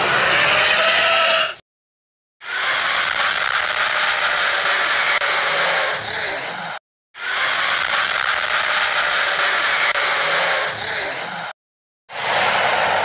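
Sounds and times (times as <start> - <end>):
harsh monster rasp: 2.4 - 11.6.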